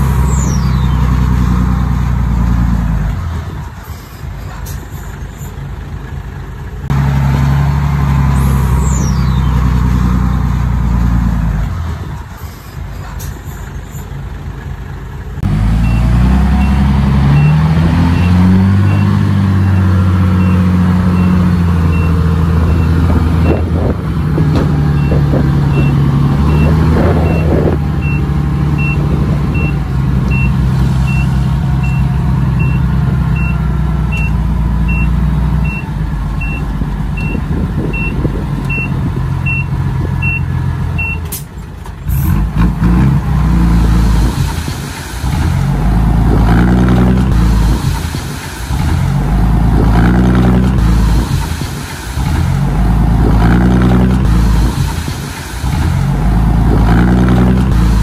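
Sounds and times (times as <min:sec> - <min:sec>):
diesel truck engine revving: 0:00.0 - 0:58.0
high warning beeps: 0:25.0 - 0:41.3.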